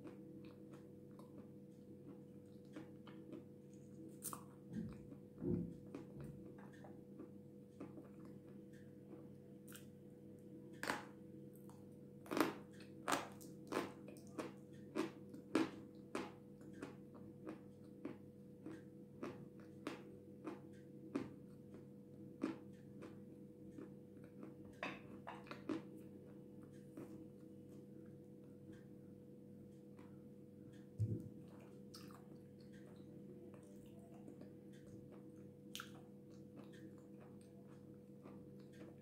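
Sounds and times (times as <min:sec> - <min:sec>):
steady low hum: 0:00.0 - 0:39.0
crunchy chewing: 0:10.8 - 0:28.8, 0:31.4 - 0:39.0.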